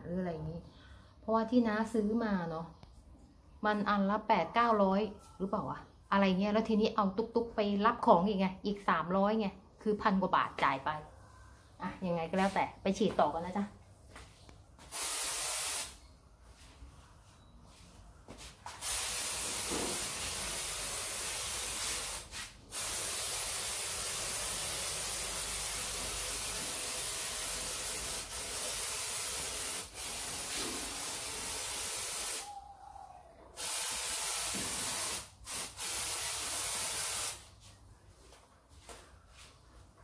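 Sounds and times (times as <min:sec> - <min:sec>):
aerosol can spraying: 0:14.8 - 0:16.0, 0:18.7 - 0:32.5, 0:33.6 - 0:37.5.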